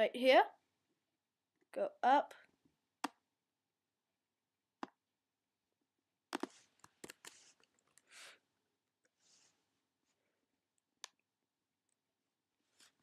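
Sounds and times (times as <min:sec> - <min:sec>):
computer mouse clicks: 0:06.3 - 0:08.0.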